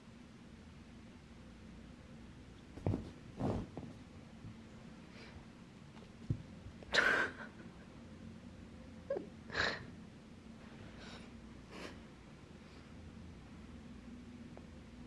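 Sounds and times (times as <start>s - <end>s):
soft thump: 2.8s - 4.0s.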